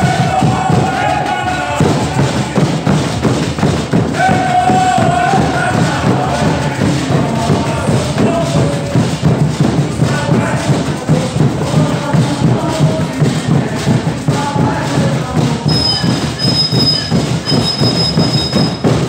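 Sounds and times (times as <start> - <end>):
drums beating driving rhythm: 0.0 - 19.0
voices singing: 0.0 - 19.0
high thin steady tone: 15.7 - 19.0.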